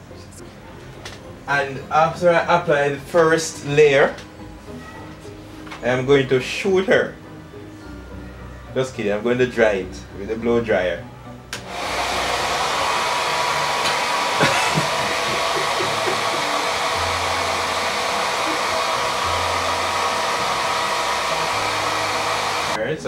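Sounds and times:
hair dryer blowing: 0:11.6 - 0:22.8.

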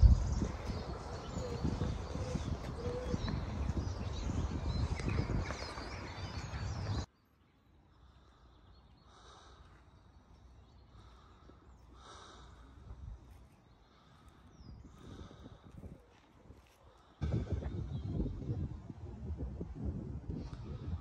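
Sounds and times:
wind rumbling on microphone: 0:00.0 - 0:07.1, 0:12.0 - 0:21.0
birds singing: 0:00.0 - 0:21.0.

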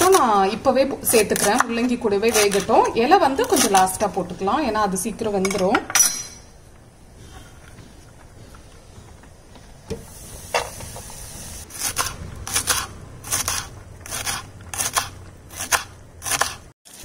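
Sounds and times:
knife chopping on wooden board: 0:11.7 - 0:16.7.

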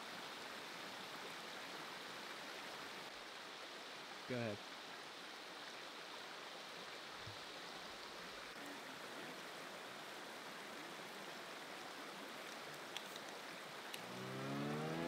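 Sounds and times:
mountain stream flowing: 0:00.0 - 0:15.0
faint ticks: 0:12.4 - 0:14.1.

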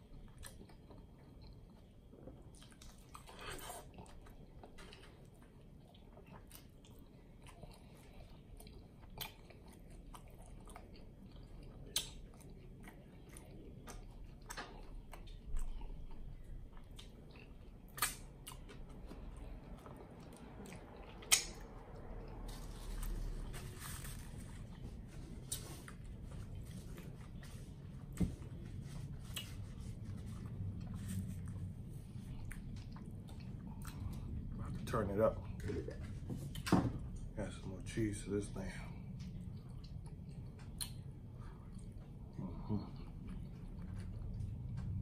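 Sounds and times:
close chewing with mouth sounds: 0:00.0 - 0:45.0
lip smacks: 0:11.8 - 0:12.4, 0:16.9 - 0:18.8, 0:19.8 - 0:21.8, 0:39.2 - 0:41.1.

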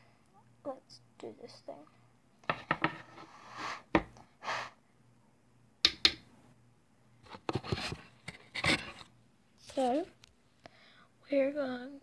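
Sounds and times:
soft puffs of breath: 0:03.1 - 0:04.8
sharp clicks and taps: 0:05.8 - 0:06.2.

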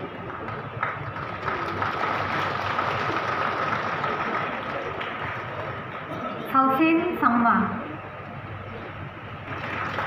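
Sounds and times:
audience applauding: 0:00.0 - 0:06.2, 0:09.4 - 0:10.0.

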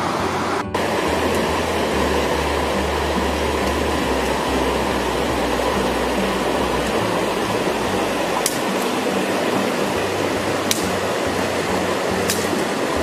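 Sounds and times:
low held tones: 0:00.0 - 0:13.0
river water rushing over rapids: 0:00.0 - 0:13.0
faint clicks: 0:08.4 - 0:08.9.

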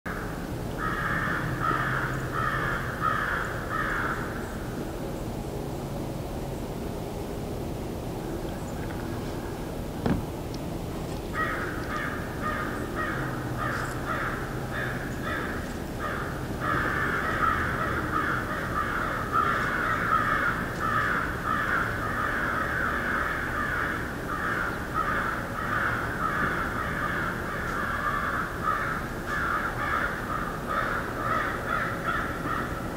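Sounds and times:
crows cawing: 0:00.1 - 0:04.5, 0:11.3 - 0:32.9.

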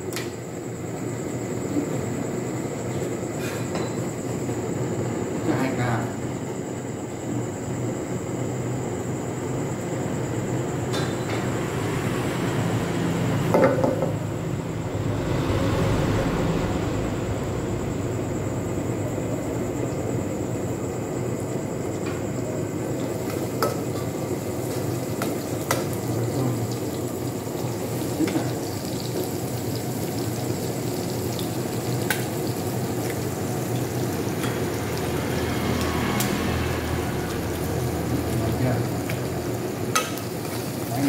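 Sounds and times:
hot oil sizzling in a pan: 0:22.3 - 0:41.0.

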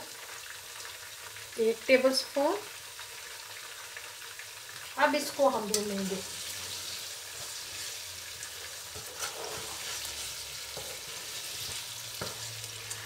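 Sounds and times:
chicken sizzling in hot oil: 0:00.0 - 0:13.0.

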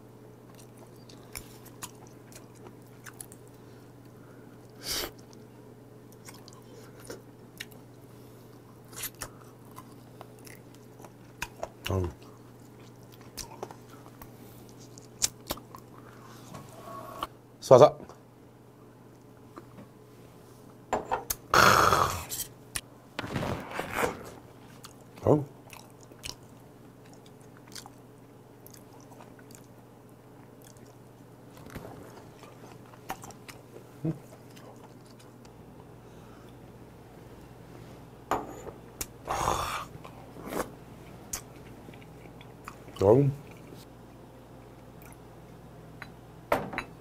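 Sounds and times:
man chewing food: 0:00.3 - 0:05.5, 0:06.1 - 0:16.3, 0:24.4 - 0:36.7, 0:39.8 - 0:43.9, 0:44.6 - 0:46.1
loud mouth noise burst: 0:21.5 - 0:22.3.

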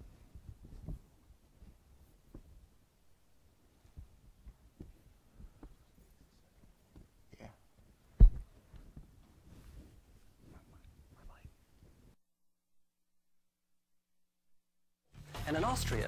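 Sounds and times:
soft knocks and shuffles: 0:00.0 - 0:12.2
loud sharp thump: 0:08.2 - 0:08.5.

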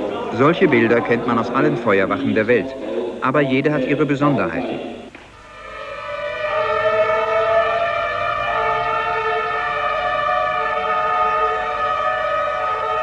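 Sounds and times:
fire engine siren wailing: 0:05.4 - 0:13.0.

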